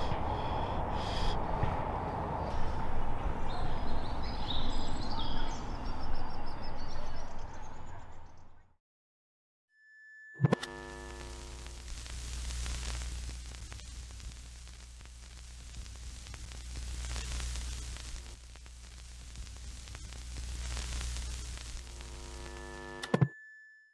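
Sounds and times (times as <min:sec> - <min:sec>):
brief electronic buzz: 0:09.7 - 0:11.7, 0:22.1 - 0:23.9
television static hiss: 0:09.9 - 0:23.8.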